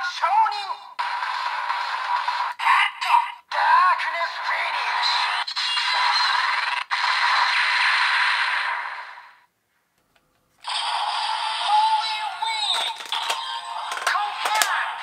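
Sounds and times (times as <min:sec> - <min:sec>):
electronic toy music: 0:10.7 - 0:14.7
sharp clicks: 0:12.7 - 0:14.8.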